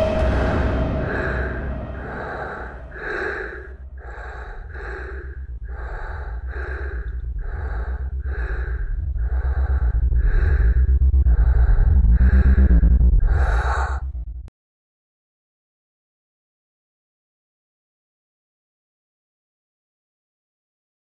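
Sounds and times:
low rumble: 0.0 - 14.5
person breathing hard: 0.0 - 14.5.

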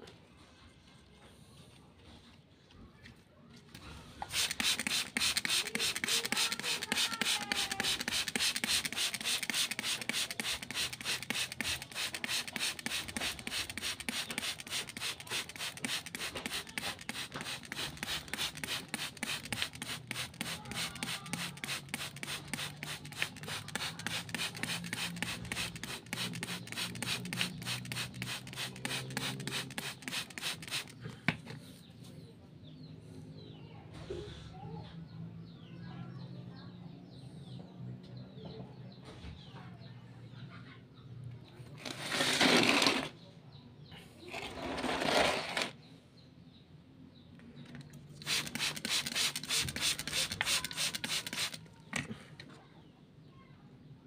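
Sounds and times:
spray bottle misting: 4.2 - 31.0, 48.2 - 51.6.

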